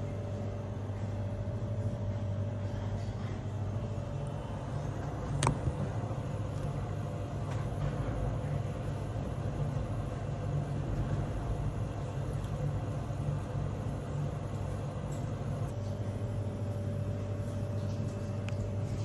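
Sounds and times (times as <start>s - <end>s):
kitchen machinery humming: 0.0s - 19.0s.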